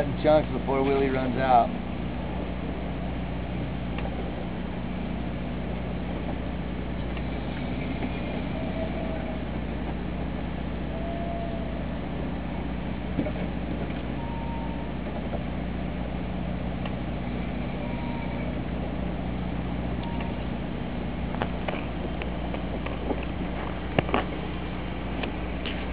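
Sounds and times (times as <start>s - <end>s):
low hum of boat machinery: 0.0s - 25.9s
water wash: 0.0s - 25.9s.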